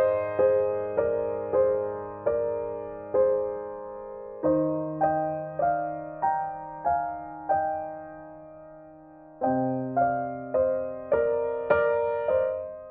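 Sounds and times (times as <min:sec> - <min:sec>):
slow gentle piano music: 0:00.0 - 0:12.9.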